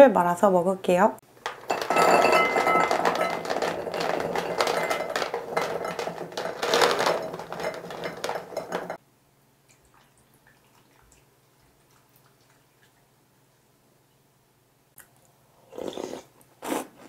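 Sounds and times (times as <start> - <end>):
small balls clattering into glass bowl: 1.4 - 9.0.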